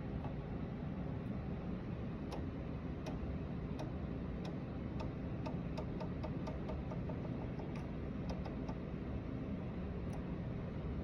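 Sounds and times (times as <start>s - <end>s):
steady low hum: 0.0s - 11.0s
rotary switch clicks: 2.2s - 8.8s.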